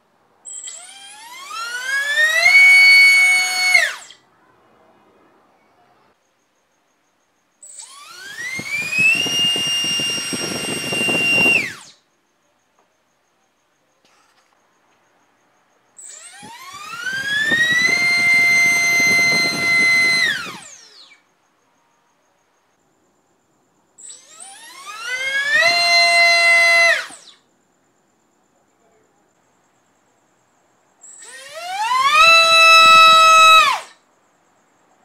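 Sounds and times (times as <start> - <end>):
brushless motor whine: 7.7 - 11.9, 16.0 - 21.2, 24.0 - 27.4, 31.1 - 34.0.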